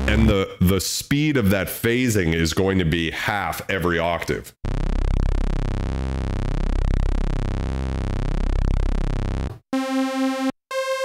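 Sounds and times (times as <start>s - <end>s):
synthesizer higher note: 0.0s - 0.4s
synthesizer low held note: 0.0s - 0.5s, 4.7s - 11.0s.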